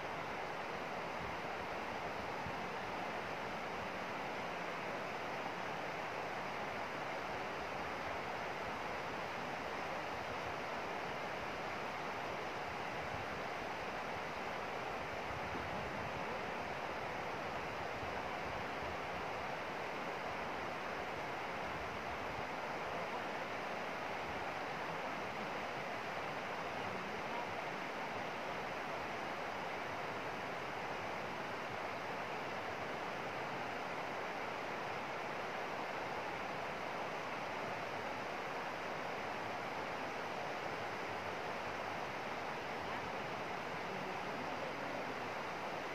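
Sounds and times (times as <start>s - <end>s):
river water rushing: 0.0s - 45.9s.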